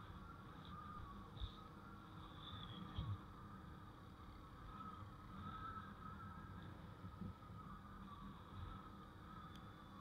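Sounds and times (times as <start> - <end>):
faint wavering whine: 0.0 - 10.0
wind and road rumble: 0.0 - 10.0.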